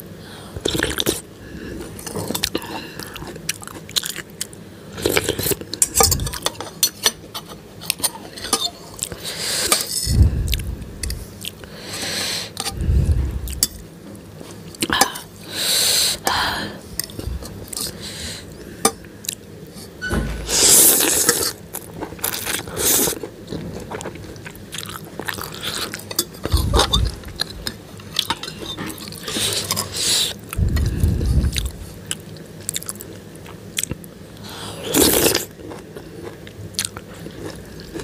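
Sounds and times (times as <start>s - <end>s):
wet chewing: 20.6s - 34.0s.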